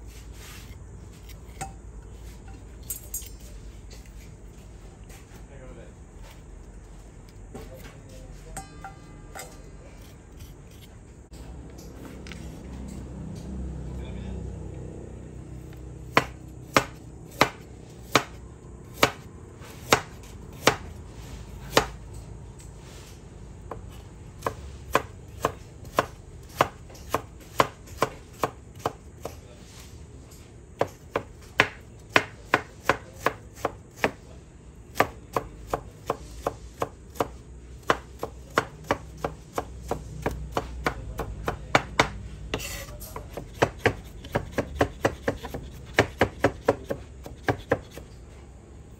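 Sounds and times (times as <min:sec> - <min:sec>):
knife chopping on wooden board: 0:16.1 - 0:20.9, 0:21.6 - 0:22.0, 0:23.7 - 0:29.4, 0:30.8 - 0:34.2, 0:34.9 - 0:48.1.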